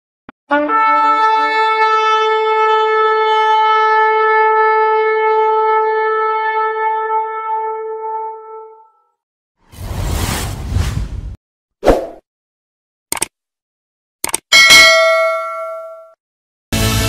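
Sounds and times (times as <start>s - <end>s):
long horn blast: 0.5s - 8.9s.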